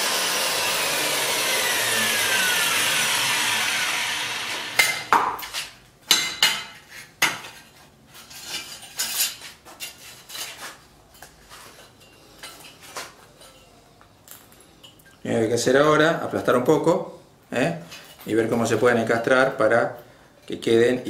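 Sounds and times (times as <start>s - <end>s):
angle grinder whining: 0.0s - 5.1s.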